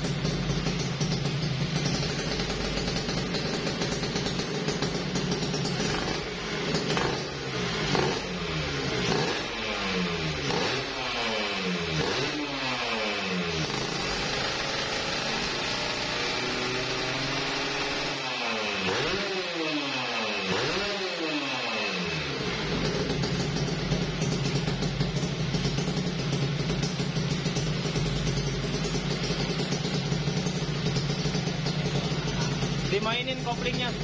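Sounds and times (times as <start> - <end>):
two-stroke engine revving: 0.0 - 34.0.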